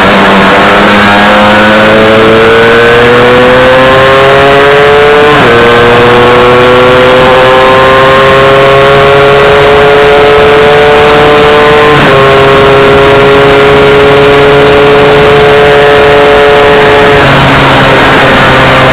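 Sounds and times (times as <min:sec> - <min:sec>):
two-stroke motorcycle engine revving: 0:00.0 - 0:18.9
wind noise on microphone: 0:10.6 - 0:18.9.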